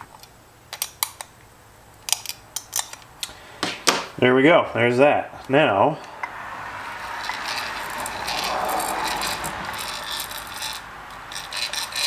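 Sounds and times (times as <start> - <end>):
gears rattling: 7.0 - 12.0.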